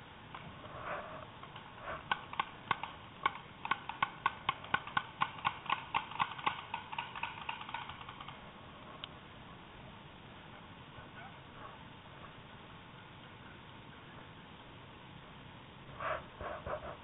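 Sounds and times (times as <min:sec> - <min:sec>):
paintball marker firing: 0:01.9 - 0:08.4.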